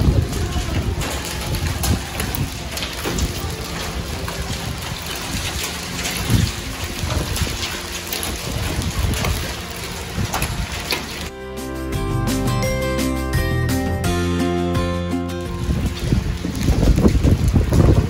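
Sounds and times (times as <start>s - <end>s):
hailstones ticking on cars: 0.0s - 11.3s, 14.7s - 18.0s
hail hissing: 0.0s - 18.0s.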